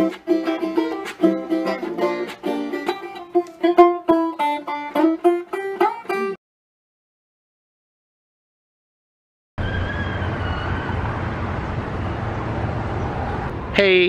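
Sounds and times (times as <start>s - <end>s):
plucked string theme music: 0.0s - 6.4s.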